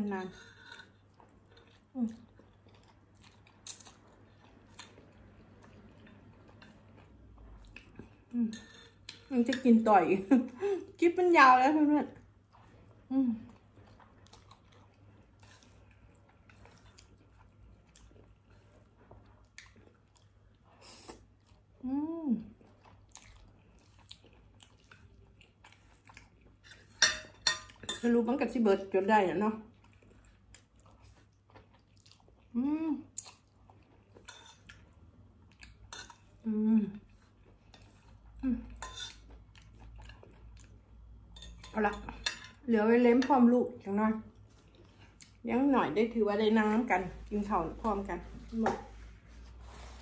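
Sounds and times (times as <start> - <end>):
faint chewing: 0.2 - 9.8, 12.0 - 42.7, 43.7 - 45.5.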